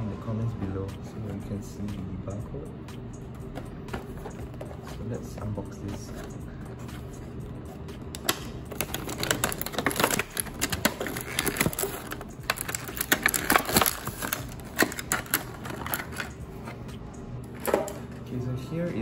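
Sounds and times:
plastic packaging crinkling: 0:08.2 - 0:16.4.

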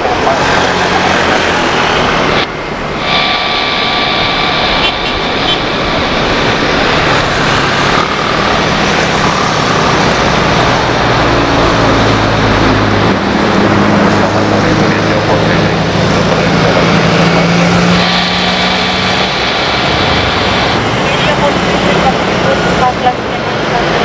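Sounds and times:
jet engines rushing and whining: 0:00.0 - 0:24.0.

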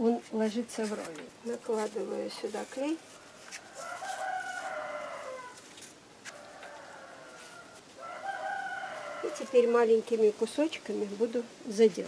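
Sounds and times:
rooster crowing: 0:03.1 - 0:05.7, 0:06.3 - 0:09.8.

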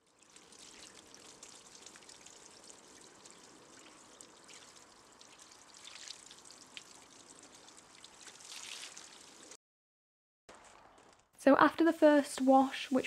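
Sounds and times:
hose water splashing on car: 0:00.0 - 0:09.6
water drips ticking: 0:00.0 - 0:09.6.

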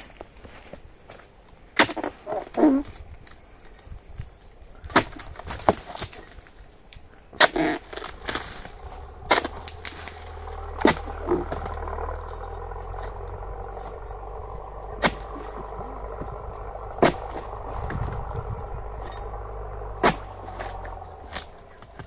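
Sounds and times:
chisel striking palm frond: 0:17.0 - 0:17.4, 0:20.0 - 0:20.7.

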